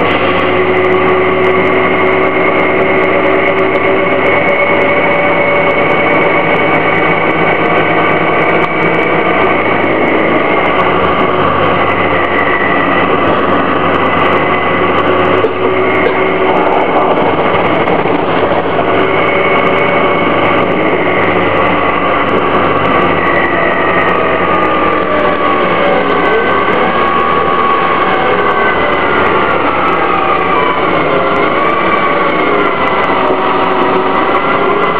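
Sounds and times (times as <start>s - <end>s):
bus engine running: 0.0s - 34.9s
high whining tones: 0.0s - 34.9s.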